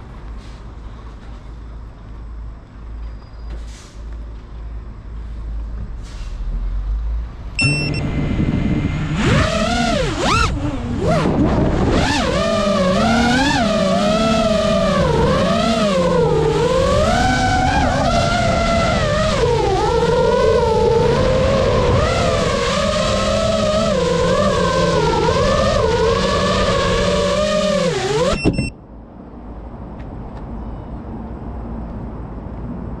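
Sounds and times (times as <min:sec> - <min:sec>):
low rumble: 0:05.4 - 0:12.0
drone motors whining: 0:07.6 - 0:28.7.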